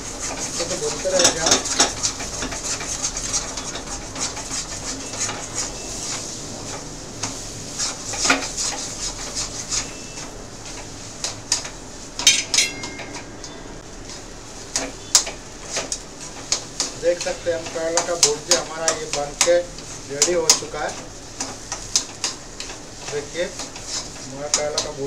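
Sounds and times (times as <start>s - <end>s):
food sizzling: 0.0s - 25.0s
metal spatula scraping a pan: 0.0s - 25.0s
metallic clang: 12.2s - 13.8s.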